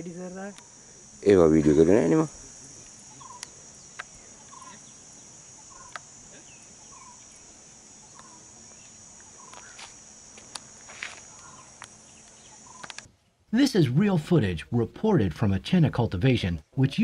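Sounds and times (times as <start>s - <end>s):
high buzz of insects: 0.0s - 17.0s
short bird calls: 3.1s - 7.4s, 8.0s - 9.9s, 11.2s - 13.1s
sharp clicks: 11.8s - 13.1s.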